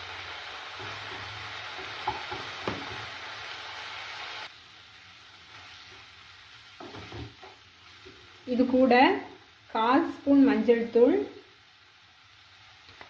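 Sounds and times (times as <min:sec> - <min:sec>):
masala sizzling in a pan: 0:00.0 - 0:13.0
spatula knocking against pan: 0:01.8 - 0:02.9.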